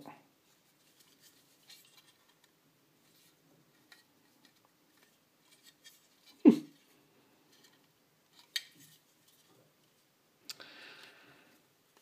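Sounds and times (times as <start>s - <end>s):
clicks and rustles of handling: 0.5s - 10.1s.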